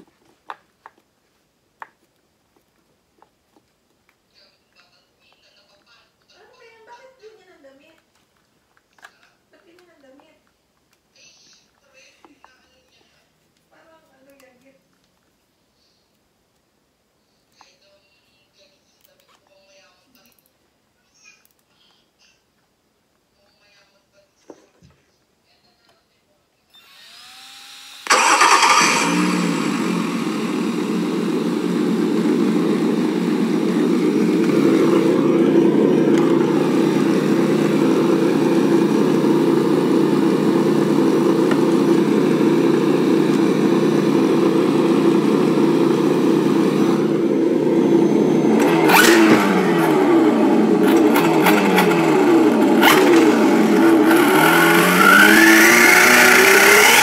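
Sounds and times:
simulated car engine from speaker: 28.1s - 57.0s.

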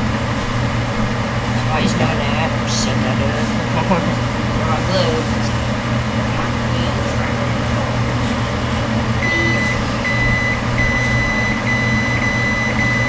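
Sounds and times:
steady low hum: 0.0s - 13.0s
microwave oven beeps: 9.2s - 13.0s.

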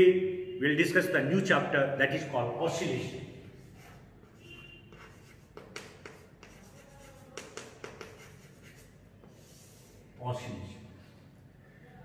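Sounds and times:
chalk writing on chalkboard: 3.4s - 10.2s.

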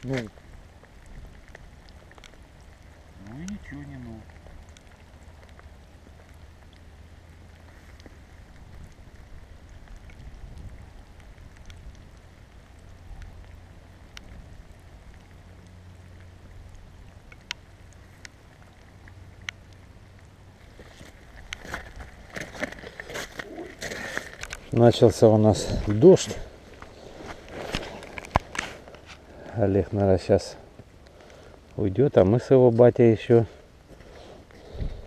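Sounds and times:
wind rumble on microphone: 0.0s - 3.3s, 4.2s - 17.4s, 34.6s - 35.0s
light rain falling: 0.0s - 35.0s
raindrops ticking on microphone: 0.0s - 35.0s
rustling at microphone: 20.6s - 30.0s.

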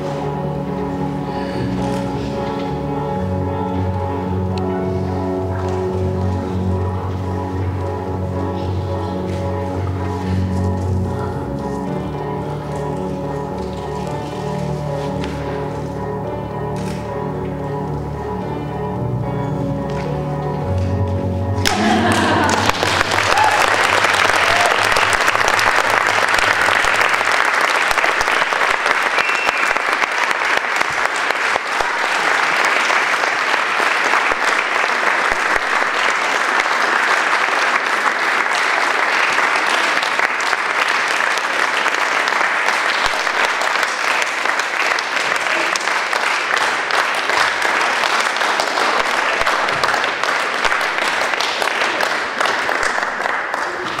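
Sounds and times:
audience applauding: 21.6s - 54.0s.

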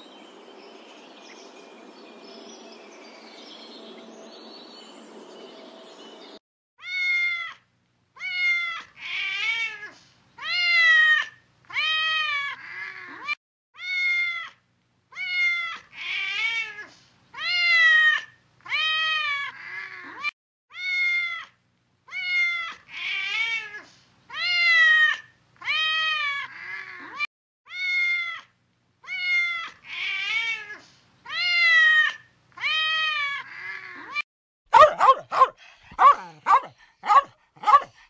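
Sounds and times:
cat meowing: 6.8s - 7.6s, 8.2s - 14.6s, 15.2s - 34.2s.

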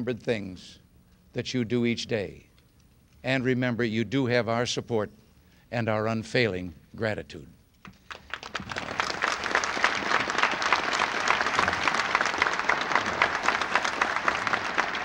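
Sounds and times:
audience applauding: 8.1s - 15.0s.

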